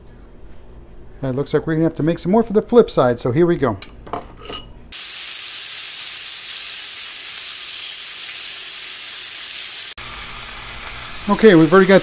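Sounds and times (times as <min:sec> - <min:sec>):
chicken sizzling in oil: 0:04.9 - 0:12.0.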